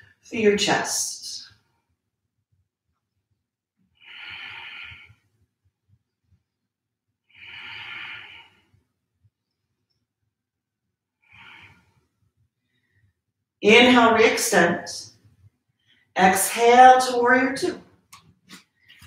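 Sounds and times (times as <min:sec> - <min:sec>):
woman breathing: 0:04.0 - 0:05.4, 0:07.2 - 0:08.9, 0:11.2 - 0:13.2.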